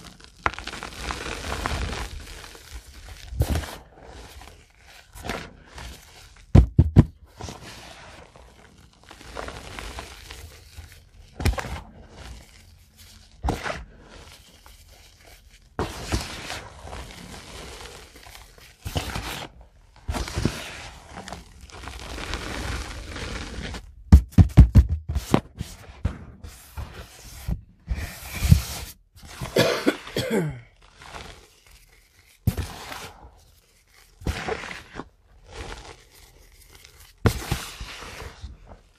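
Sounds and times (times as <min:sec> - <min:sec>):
sharp chalk cracks: 0:00.0 - 0:03.8
chalk block crunching: 0:00.0 - 0:38.9.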